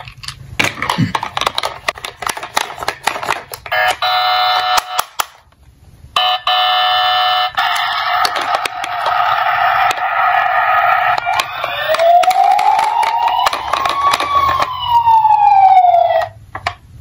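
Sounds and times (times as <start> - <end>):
plastic toy cars clattering: 0.0 - 4.0, 11.4 - 14.8
toy electronic siren: 3.7 - 5.0, 6.2 - 16.4.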